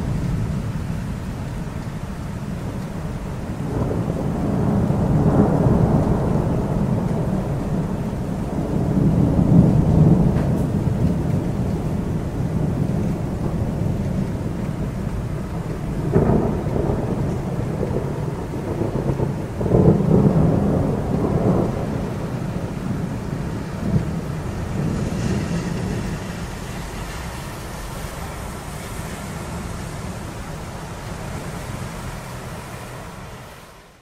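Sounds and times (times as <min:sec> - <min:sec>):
thunder rumbling: 0:00.0 - 0:33.4
steady rain: 0:00.0 - 0:34.0.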